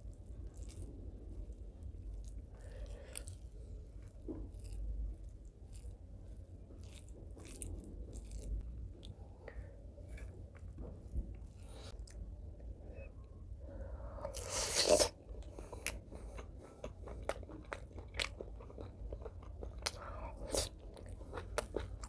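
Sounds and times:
chewing: 0.0 - 12.3, 14.2 - 22.0
fingers mixing rice into sauce: 0.2 - 9.2.

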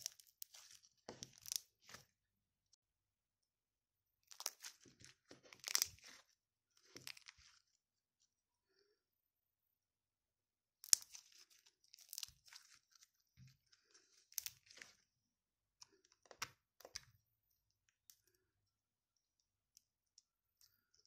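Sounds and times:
slime popping and crackling: 4.3 - 6.2, 10.8 - 11.4, 12.0 - 12.6.

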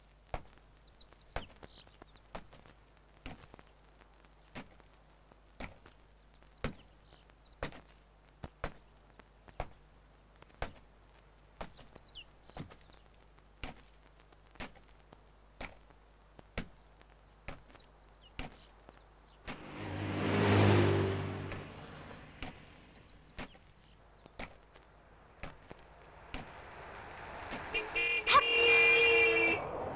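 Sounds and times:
car passing close: 19.5 - 23.2, 25.9 - 29.9.

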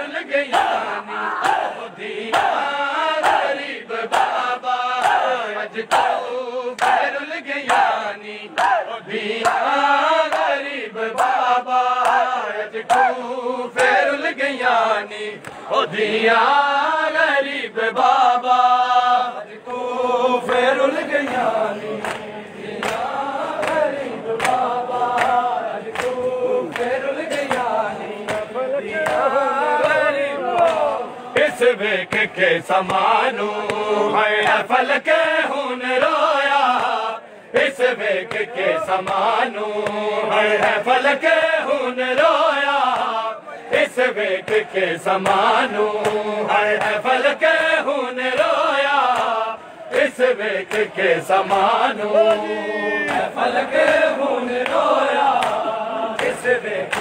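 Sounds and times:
crowd of men chanting in unison: 0.0 - 57.0
hands slapping bare chests: 4.1 - 13.2, 20.4 - 34.7, 37.7 - 40.8, 42.8 - 43.2, 43.8 - 47.0, 47.6 - 57.0.

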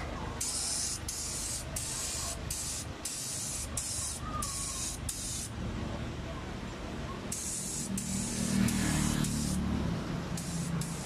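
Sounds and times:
paint spray gun hissing: 0.4 - 5.5, 7.3 - 9.6, 10.3 - 11.0.

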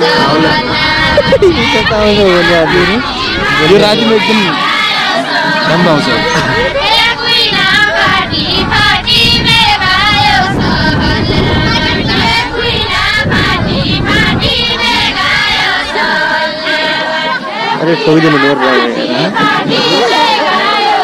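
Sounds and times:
low rumbling noise: 0.0 - 16.6
women and girls singing folk song: 0.0 - 21.0.

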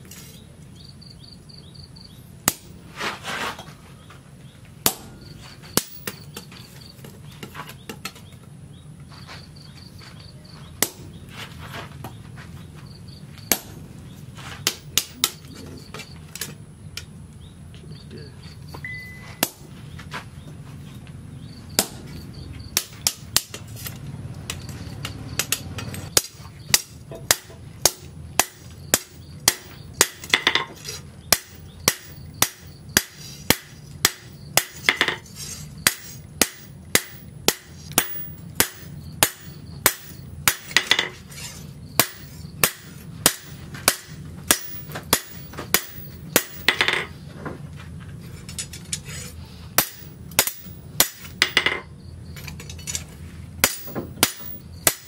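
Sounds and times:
hammer clanging on steel: 4.8 - 8.2, 24.5 - 41.2, 42.0 - 47.2, 49.8 - 55.0.

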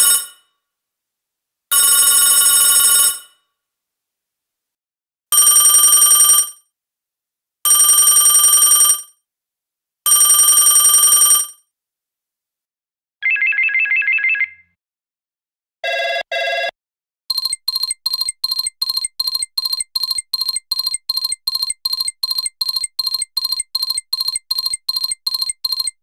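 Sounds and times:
telephone trilling ring: 10.1 - 11.5.

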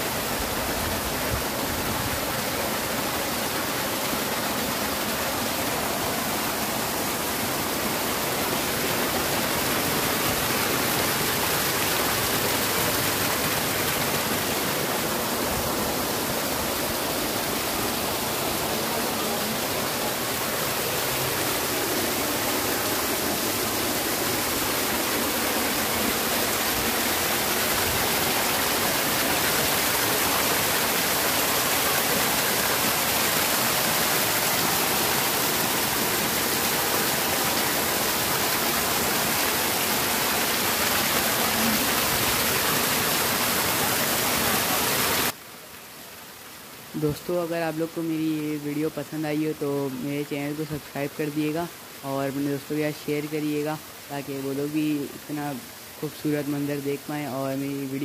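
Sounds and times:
waterfall splashing into pool: 0.0 - 47.1.

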